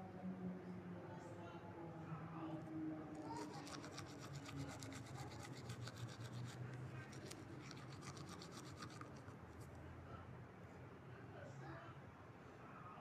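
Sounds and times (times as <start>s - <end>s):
scratchy rubbing: 3.2s - 9.6s.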